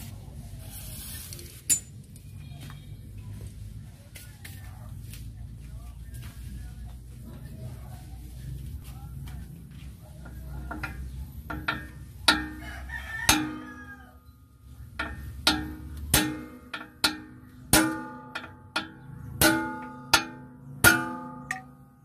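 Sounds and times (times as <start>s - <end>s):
rooster crowing: 12.4s - 14.4s
hammer clanking on steel: 15.0s - 21.9s.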